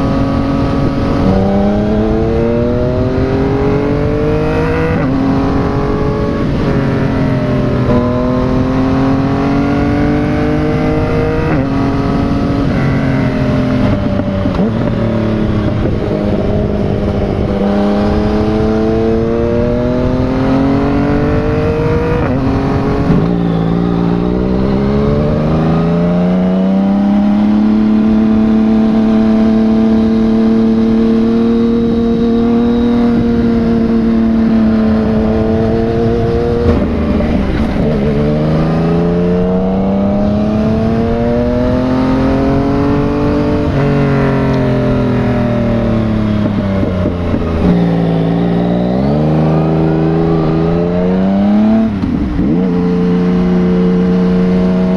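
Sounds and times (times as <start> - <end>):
motorcycle engine shifting gears: 0.0 - 54.9.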